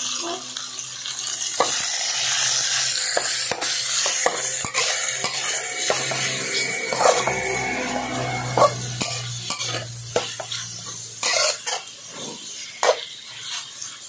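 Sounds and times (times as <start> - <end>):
meat sizzling in a wok: 0.0 - 14.0
metal spatula scraping a pan: 1.6 - 14.0.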